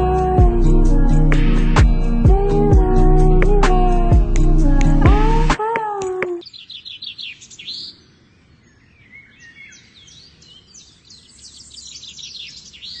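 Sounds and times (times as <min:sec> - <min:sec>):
small birds chirping: 0:06.0 - 0:13.0.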